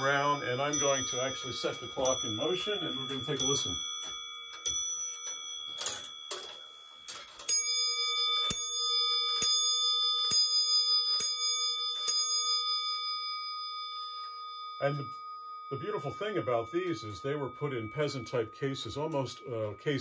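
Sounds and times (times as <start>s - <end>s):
clock movement ticking beats: 0.0s - 9.6s
clock bell ringing: 0.0s - 20.0s.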